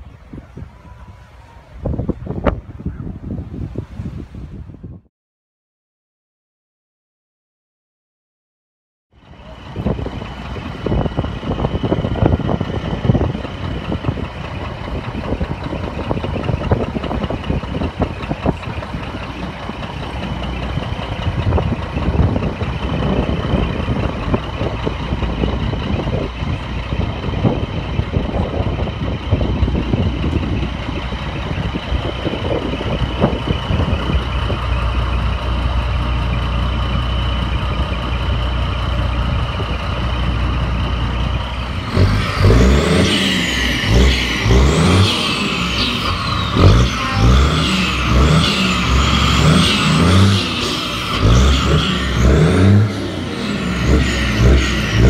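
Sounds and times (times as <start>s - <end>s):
truck engines running: 0.0s - 4.8s, 9.1s - 55.0s.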